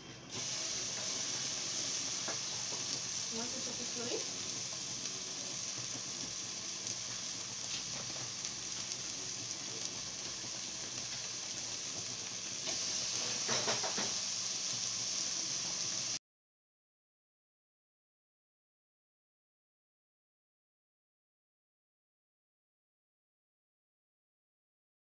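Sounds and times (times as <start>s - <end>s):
meat sizzling in a pot: 0.0s - 16.2s.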